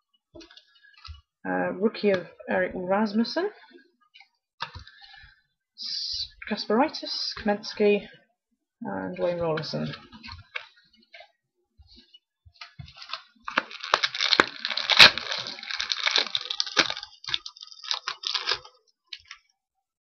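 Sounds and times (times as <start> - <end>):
wrapper crinkling and tearing: 12.6 - 19.4
loud wrapper crack: 12.9 - 19.4.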